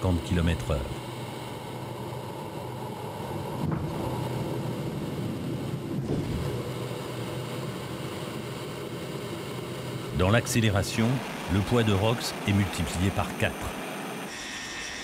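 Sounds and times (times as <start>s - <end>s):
jet engines roaring: 0.0s - 15.0s.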